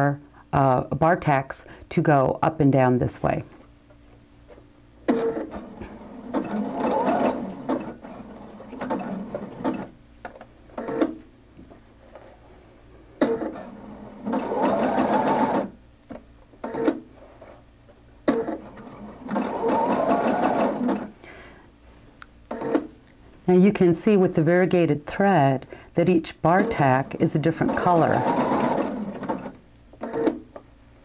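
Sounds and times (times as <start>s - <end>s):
sewing machine stitching: 5.1s - 9.9s, 13.2s - 15.8s, 18.3s - 21.2s, 26.4s - 30.4s.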